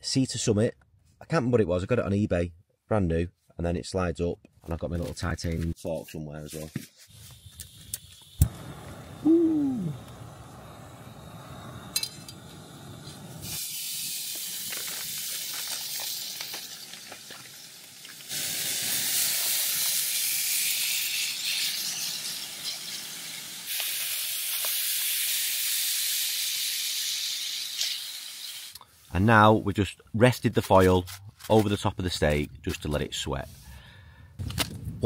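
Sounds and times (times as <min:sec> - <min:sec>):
camping stove burning: 0:07.1 - 0:28.8
steaks sizzling in a pan: 0:12.6 - 0:28.7
pops and crackles: 0:13.4 - 0:20.0.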